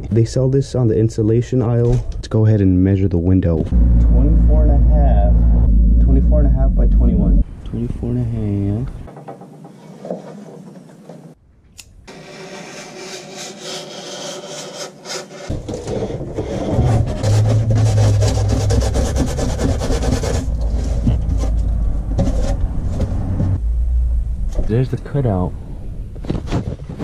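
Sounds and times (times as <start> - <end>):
heavy low rumble: 3.5 - 9.1, 16.5 - 26.5.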